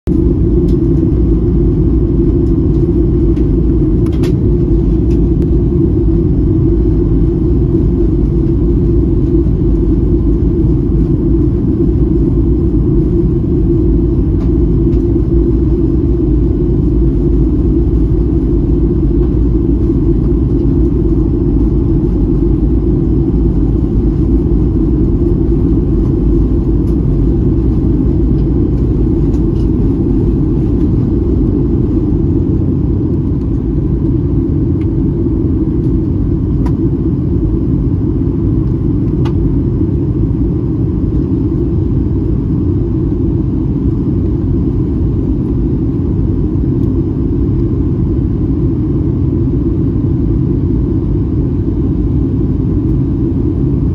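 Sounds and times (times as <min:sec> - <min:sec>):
jet engine rumble in cabin: 0:00.0 - 0:53.9
airflow noise: 0:00.1 - 0:53.9.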